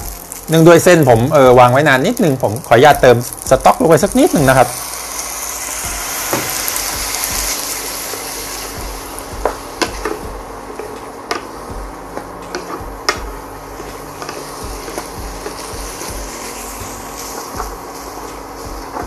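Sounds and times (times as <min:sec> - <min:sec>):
food sizzling in frying pan: 0:00.0 - 0:19.0
spatula tapping pan: 0:09.4 - 0:11.5, 0:12.1 - 0:16.1.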